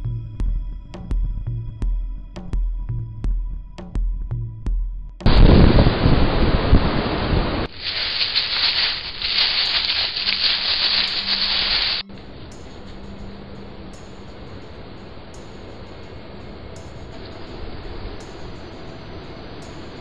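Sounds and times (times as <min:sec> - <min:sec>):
wind buffeting microphone: 0:05.2 - 0:20.0
high hiss: 0:05.3 - 0:20.0.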